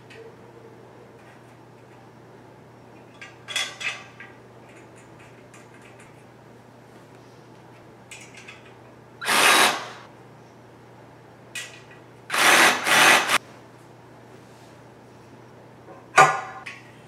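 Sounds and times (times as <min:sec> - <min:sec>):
faint clicks of metal parts: 0:02.9 - 0:06.4, 0:07.1 - 0:09.0, 0:11.5 - 0:12.1
cordless drill driving bolts: 0:09.2 - 0:10.0, 0:12.3 - 0:13.4.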